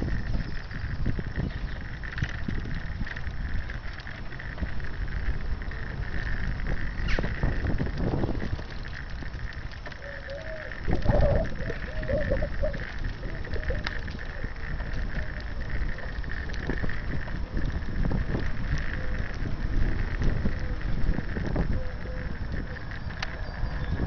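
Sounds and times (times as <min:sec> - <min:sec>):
low noise of moving on wet street: 0:00.0 - 0:24.0
wind rumbling on microphone: 0:00.0 - 0:24.0
wavering high-pitched sound: 0:10.0 - 0:13.8.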